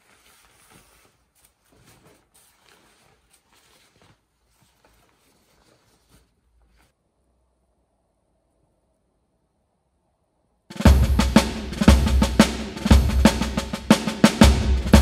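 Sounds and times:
fabric rustling: 0:00.0 - 0:07.0.

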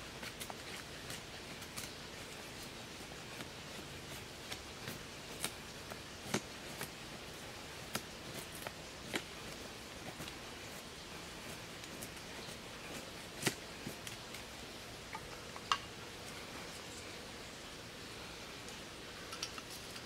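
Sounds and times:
knife shaving wood: 0:00.0 - 0:14.6.

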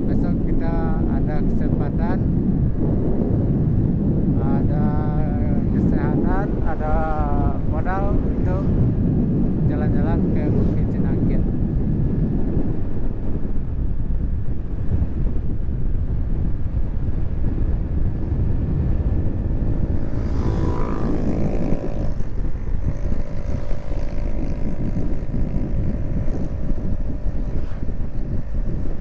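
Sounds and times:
wind and road noise: 0:00.0 - 0:29.0
motorcycle engine: 0:15.6 - 0:29.0.

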